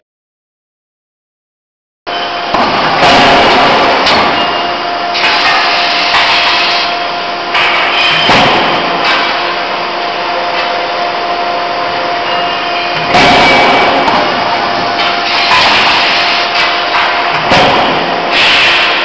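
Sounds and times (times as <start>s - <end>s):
forging hammer hiss and hum: 2.5s - 19.0s
sharp metallic knocks: 12.9s - 19.0s.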